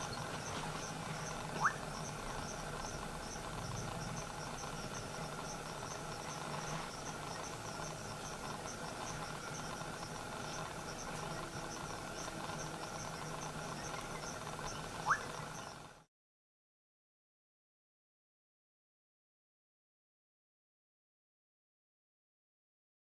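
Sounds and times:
crickets chirping: 0:00.0 - 0:16.0
night insect chorus: 0:00.0 - 0:16.0.

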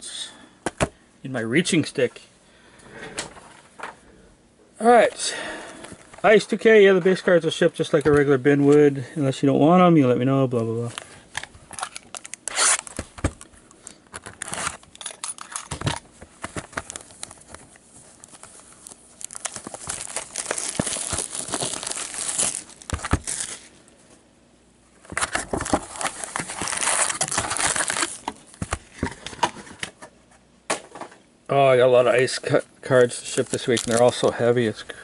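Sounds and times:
plastic shrink wrap crinkling: 0:10.8 - 0:23.8, 0:25.0 - 0:29.3, 0:32.9 - 0:34.8.

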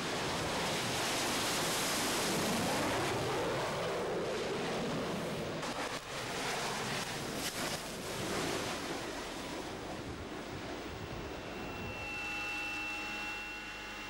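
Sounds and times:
jet engine roaring: 0:08.0 - 0:14.0.

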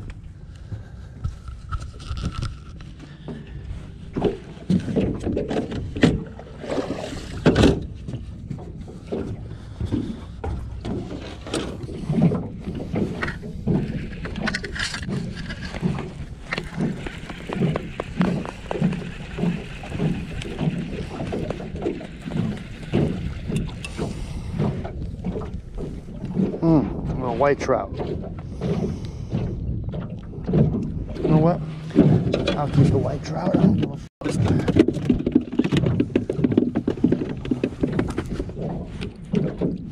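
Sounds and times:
waves slapping boat hull: 0:00.0 - 0:39.9
fish splashing: 0:09.1 - 0:26.7.

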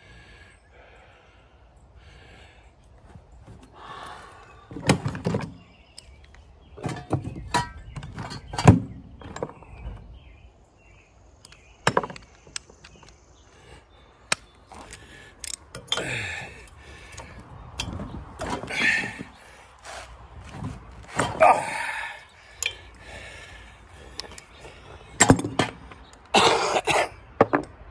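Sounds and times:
metal tools clinking on engine: 0:06.8 - 0:09.8, 0:14.8 - 0:19.4, 0:22.5 - 0:23.0, 0:24.1 - 0:26.2.

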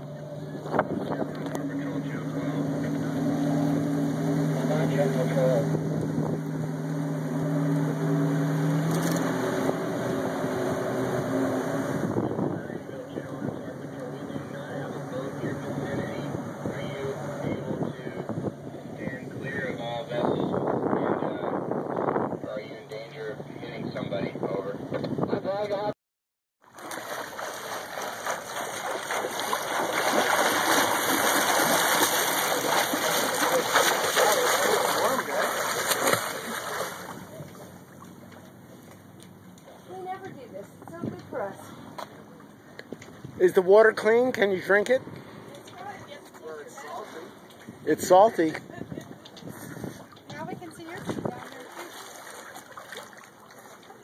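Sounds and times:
rushing water: 0:00.0 - 0:12.2, 0:26.6 - 0:38.3, 0:49.8 - 0:54.0
boat engine running: 0:00.0 - 0:25.9, 0:26.6 - 0:54.0.

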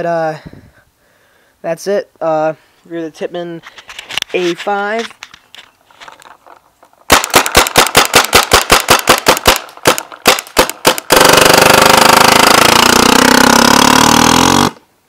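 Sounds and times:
paintball marker shots: 0:07.1 - 0:13.4.

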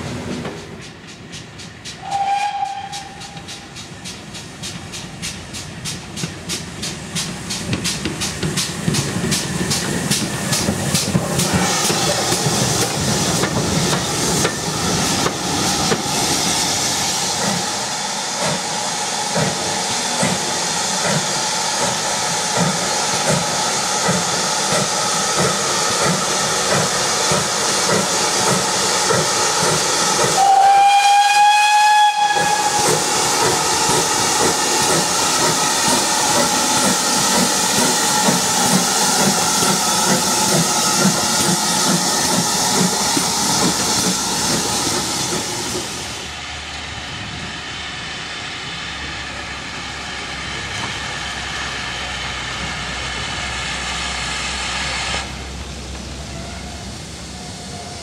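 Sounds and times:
steam locomotive hissing and chuffing: 0:00.0 - 0:58.0
train rail noise: 0:00.0 - 0:58.0
steam whistle: 0:02.0 - 0:03.7, 0:30.3 - 0:34.0.

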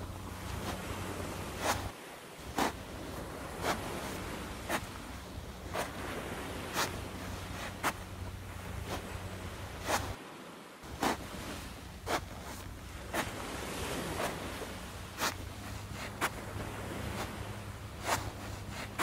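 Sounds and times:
low hum: 0:00.0 - 0:01.9.

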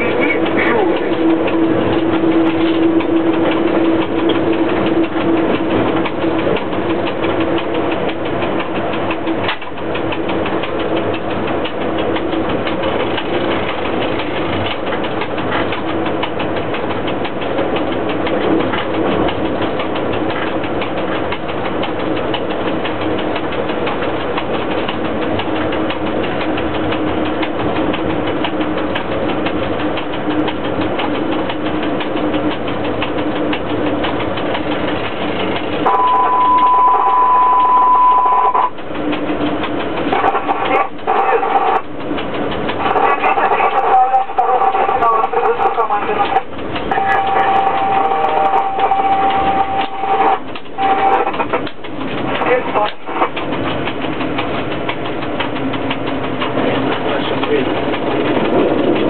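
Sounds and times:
constant hum: 0:00.0 - 0:59.0
locomotive running noise: 0:00.0 - 0:59.0.

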